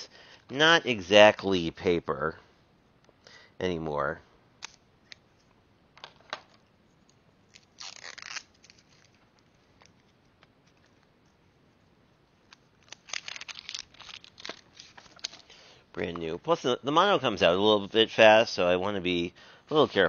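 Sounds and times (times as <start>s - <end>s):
crinkling rustling: 5.1s - 11.4s, 12.4s - 16.3s.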